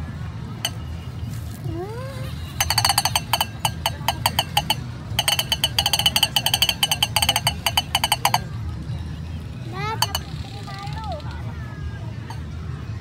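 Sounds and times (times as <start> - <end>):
toy clacker ringing clicks: 2.5 - 8.8, 9.8 - 10.7.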